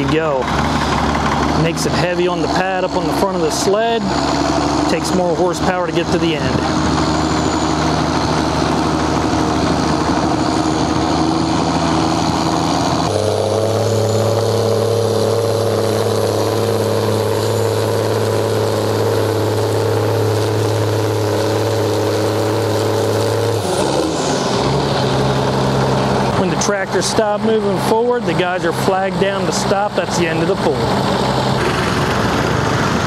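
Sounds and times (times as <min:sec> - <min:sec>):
tractor diesel engine under load: 0:00.0 - 0:33.0.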